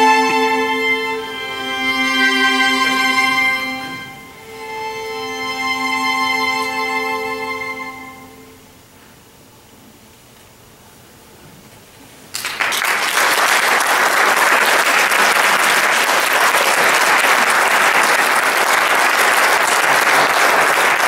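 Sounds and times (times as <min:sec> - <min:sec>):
audience applause: 0:12.3 - 0:21.0.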